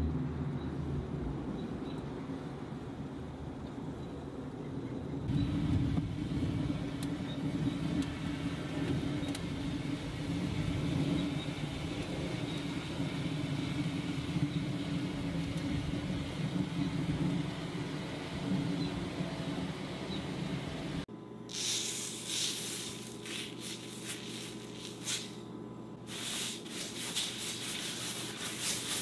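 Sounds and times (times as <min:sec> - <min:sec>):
steady low rumble: 0:02.1 - 0:21.1.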